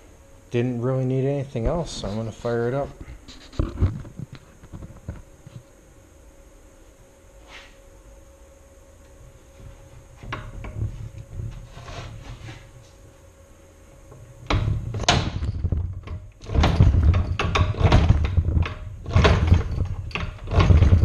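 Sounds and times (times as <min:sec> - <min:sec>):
engine cranking clatter: 0:16.4 - 0:21.0.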